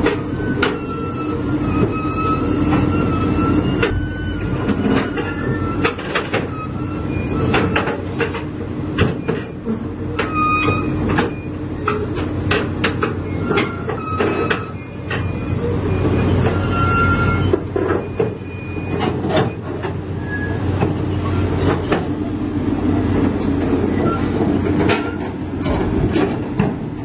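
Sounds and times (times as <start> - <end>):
diesel engine running: 0.0 - 27.0
steel tracks clanking and squealing: 0.0 - 27.0.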